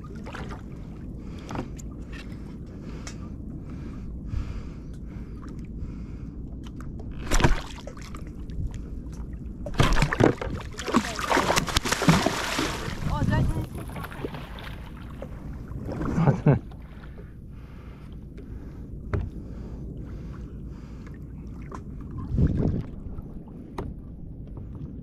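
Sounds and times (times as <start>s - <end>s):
fish splashing in water: 7.2s - 8.3s, 9.7s - 15.3s
wind on microphone: 8.1s - 17.9s, 18.6s - 25.0s.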